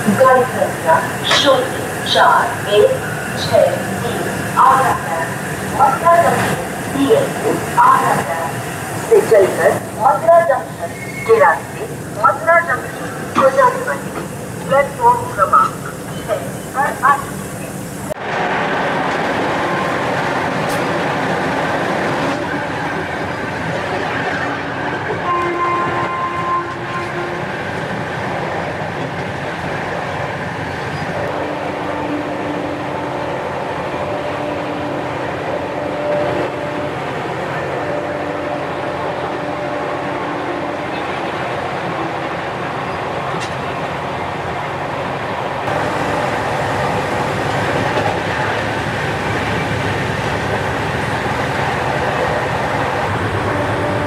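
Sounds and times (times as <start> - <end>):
train wheels rumbling on rails: 0.0 - 54.0
train horn blasts: 25.2 - 27.6, 31.2 - 42.2, 53.2 - 54.0.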